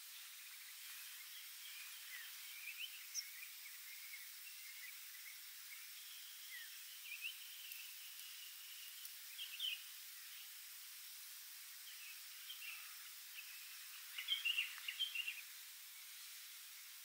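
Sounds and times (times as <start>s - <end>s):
steady hiss: 0.0s - 17.0s
bird chirps and trills: 11.9s - 15.5s.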